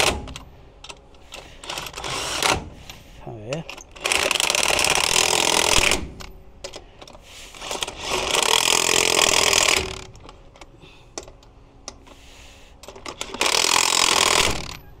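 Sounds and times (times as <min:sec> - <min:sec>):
impact wrench spinning: 0:04.0 - 0:06.1, 0:07.6 - 0:10.1, 0:13.0 - 0:14.7.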